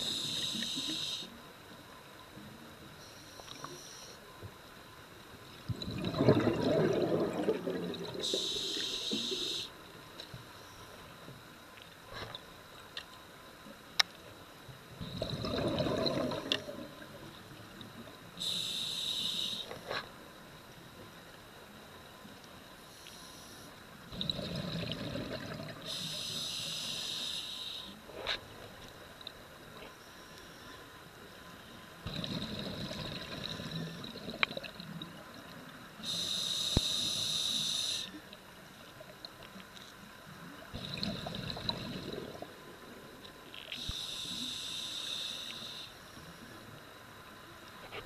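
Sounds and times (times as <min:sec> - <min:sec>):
scuba regulator breathing: 0:00.0 - 0:01.3, 0:08.2 - 0:09.7, 0:18.4 - 0:19.7, 0:25.9 - 0:28.0, 0:36.0 - 0:38.2, 0:43.8 - 0:46.0
regulator hiss: 0:00.0 - 0:01.4, 0:08.2 - 0:09.9, 0:18.3 - 0:19.9, 0:25.8 - 0:28.1, 0:36.0 - 0:38.3, 0:43.7 - 0:46.6
bubbling rush: 0:05.7 - 0:08.3, 0:15.2 - 0:16.9.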